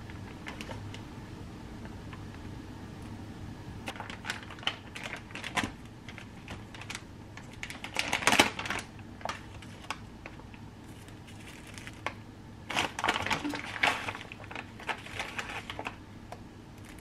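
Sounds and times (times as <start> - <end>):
plastic bags crinkling: 3.9 - 16.0, 16.8 - 17.0.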